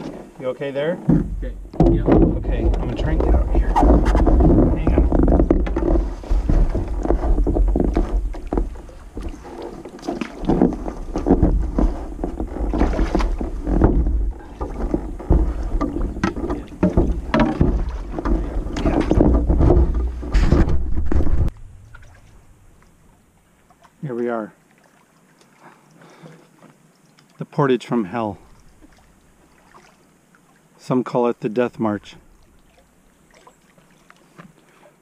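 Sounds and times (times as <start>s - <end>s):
canoe knocking against rocks: 1.0s - 22.8s
deep rumble: 1.2s - 9.8s, 10.5s - 23.1s.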